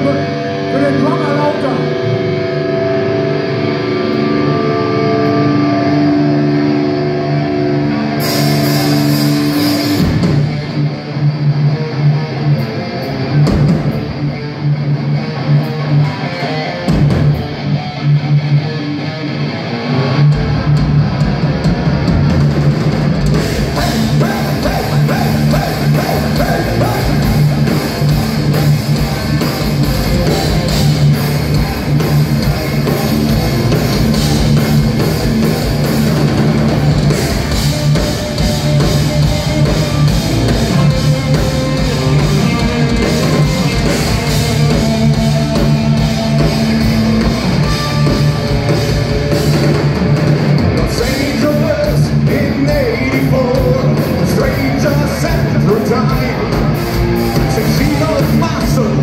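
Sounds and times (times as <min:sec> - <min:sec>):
held electric guitar notes: 0:00.0 - 0:22.1
heavy metal band playing live: 0:00.0 - 0:59.0
drum kit: 0:08.1 - 0:11.3, 0:13.3 - 0:14.4, 0:15.6 - 0:17.9, 0:20.2 - 0:59.0.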